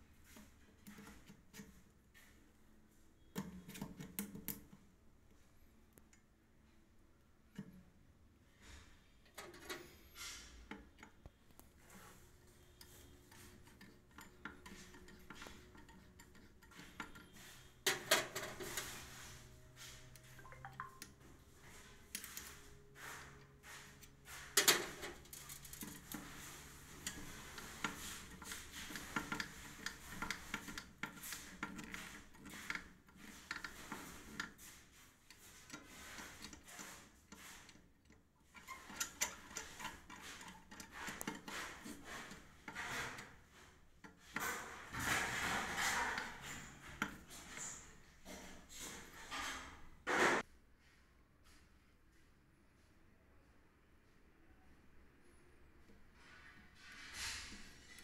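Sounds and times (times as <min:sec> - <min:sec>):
small metallic clicks and scraping: 0:00.0 - 0:02.5, 0:03.1 - 0:50.5, 0:55.2 - 0:58.0.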